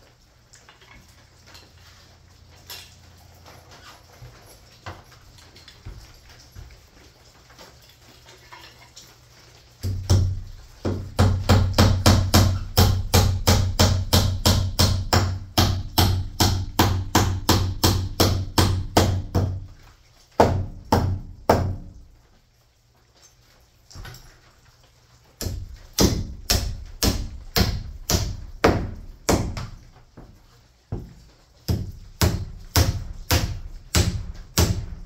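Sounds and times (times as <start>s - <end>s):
hammer striking wood framing: 9.8s - 19.7s, 20.4s - 21.9s, 25.4s - 29.8s, 31.7s - 35.0s.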